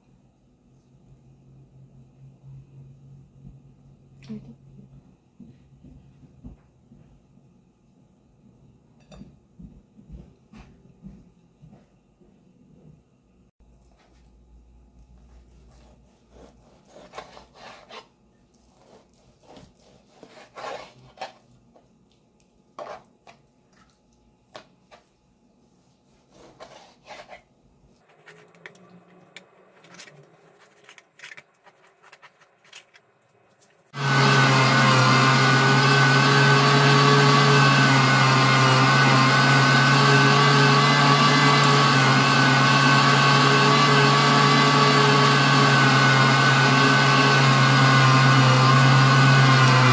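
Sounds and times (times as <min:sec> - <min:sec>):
knife slicing on plastic board: 0:15.6 - 0:18.1
electric meat grinder humming: 0:33.9 - 0:49.9.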